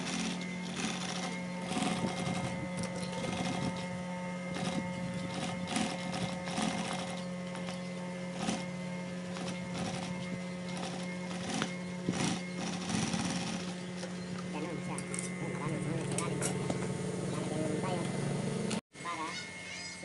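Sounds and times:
sewing machine motor hum: 0.0 - 18.8.

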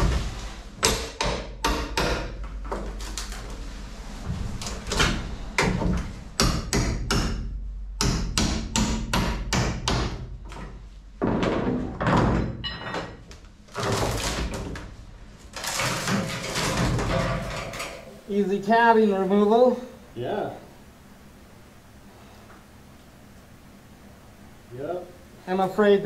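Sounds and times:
hammer knocking: 0.8 - 2.4, 5.6 - 10.3
crunching and scraping: 13.6 - 18.2.

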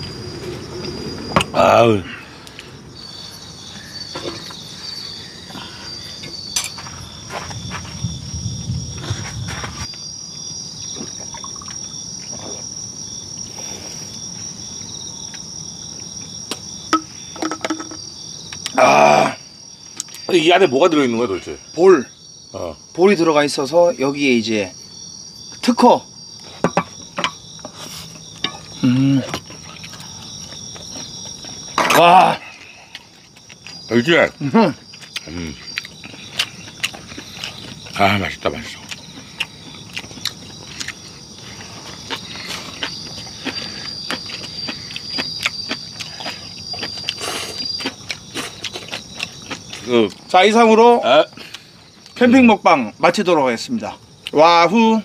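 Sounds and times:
crickets chirping: 0.0 - 55.0
night insects trilling: 0.0 - 55.0
chopsticks and tableware clicking: 17.0 - 18.0
person murmuring: 28.8 - 29.3.

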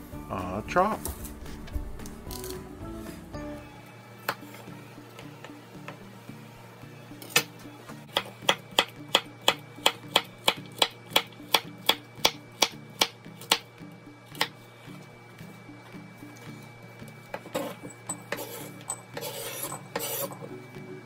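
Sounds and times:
background music: 0.0 - 21.0
knife chopping on wooden board: 8.1 - 13.6, 14.4 - 14.6.

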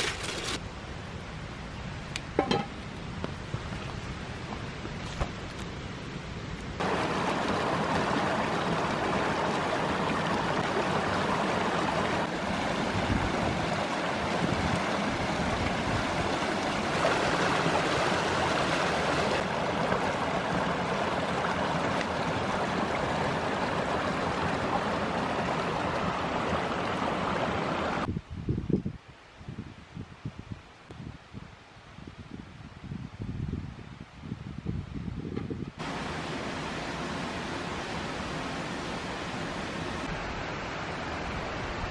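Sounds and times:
stream rushing over rocks: 6.8 - 28.1, 35.8 - 41.9.

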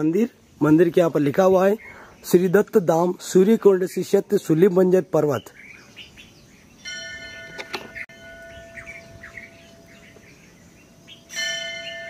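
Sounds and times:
birds chirping: 0.0 - 12.0
temple bell ringing: 6.8 - 12.0.

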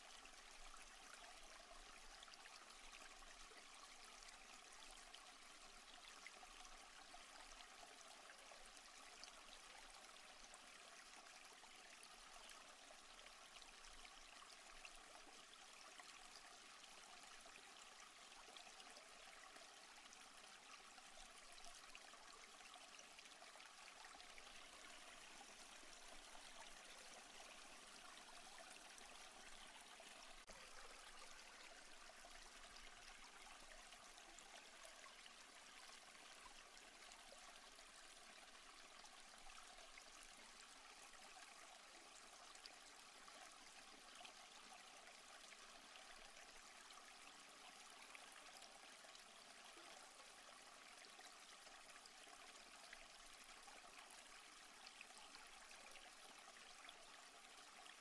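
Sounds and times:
faint stream running: 0.0 - 58.0.

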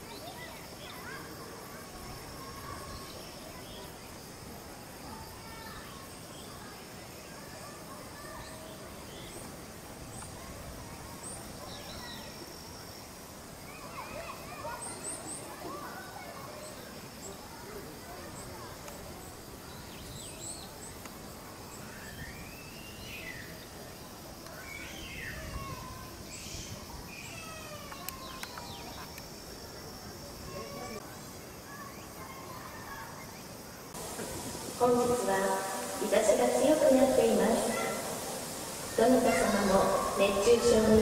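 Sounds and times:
faint high bird chirps: 0.0 - 4.2, 5.1 - 9.5, 10.1 - 18.7, 21.7 - 23.8, 24.4 - 29.2.

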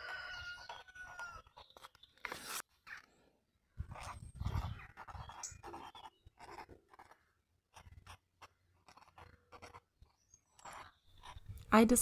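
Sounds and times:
pen scratching on paper: 3.8 - 11.6.

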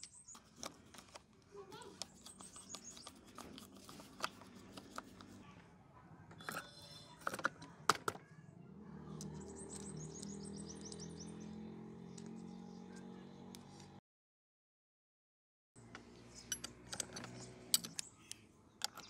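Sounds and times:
bird chirping rapidly: 2.1 - 3.5, 9.3 - 13.0
sharp metal clicks: 15.8 - 19.0.

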